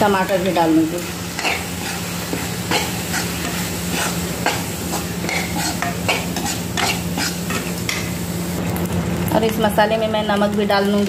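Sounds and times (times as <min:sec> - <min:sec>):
oil sizzling: 0:00.0 - 0:11.0
metal spoon scraping a pan: 0:01.3 - 0:08.1.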